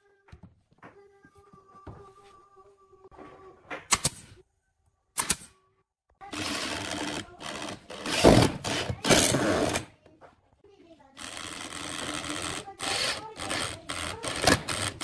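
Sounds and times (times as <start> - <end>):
electric drill running: 6.3 - 9.8, 11.2 - 15.0.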